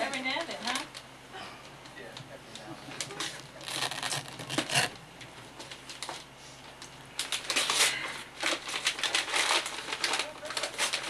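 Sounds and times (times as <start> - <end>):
wrapping paper tearing and crumpling: 3.0 - 5.0, 7.2 - 11.0.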